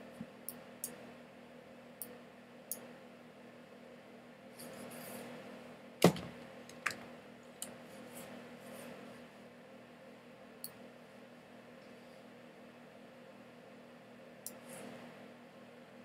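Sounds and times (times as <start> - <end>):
faint electrical hum: 0.0 - 16.0
dull thump: 6.0 - 6.4.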